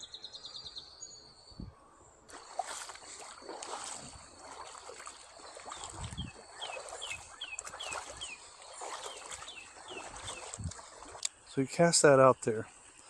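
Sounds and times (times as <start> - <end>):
bird chirping: 0.0 - 2.6, 3.8 - 11.5
stream water gurgling: 2.3 - 13.0.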